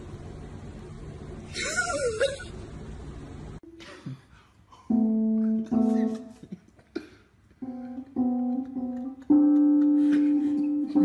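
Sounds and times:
electronic keyboard notes: 4.9 - 6.5, 7.6 - 11.0.

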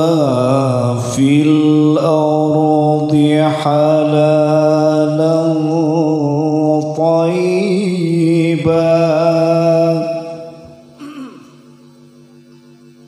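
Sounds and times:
man chanting melodically: 0.0 - 11.0.

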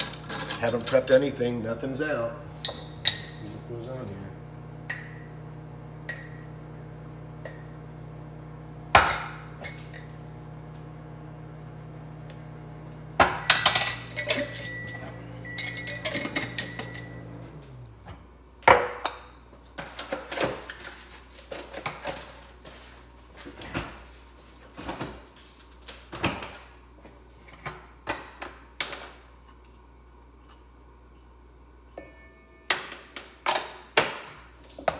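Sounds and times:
utensils clinking against metal bowl: 0.0 - 1.4, 13.5 - 17.1
steady low hum: 0.0 - 18.6.

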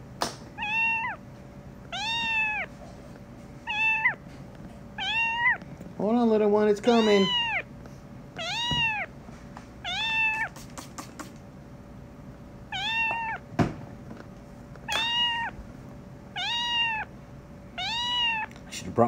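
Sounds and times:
kitten meowing: 0.6 - 1.2, 1.9 - 2.7, 3.7 - 4.2, 5.0 - 5.6, 6.8 - 7.7, 8.4 - 9.1, 9.8 - 10.6, 12.7 - 13.4, 14.9 - 15.6, 16.3 - 17.1, 17.8 - 18.5.

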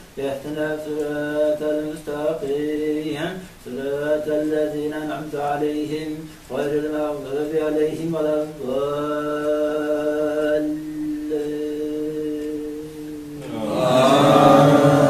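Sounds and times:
man chanting recitation: 0.2 - 15.0
men's voices responding in unison: 13.4 - 15.0.

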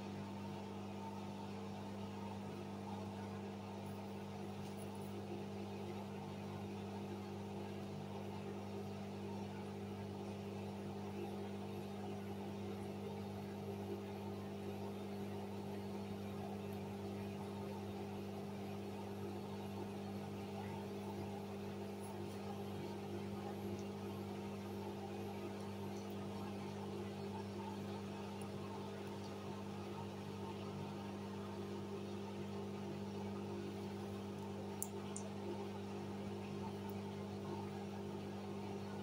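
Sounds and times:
washing machine motor humming: 0.0 - 39.0.

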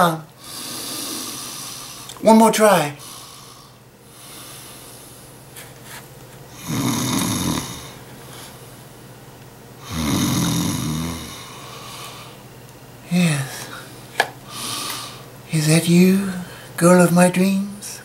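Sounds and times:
man snoring: 0.4 - 2.1, 6.5 - 8.0, 9.8 - 12.4.

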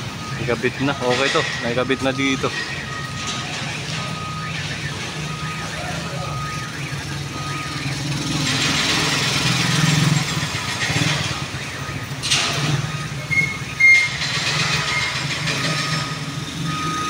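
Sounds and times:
engine humming: 0.0 - 17.0
short high beeps: 12.9 - 14.2.

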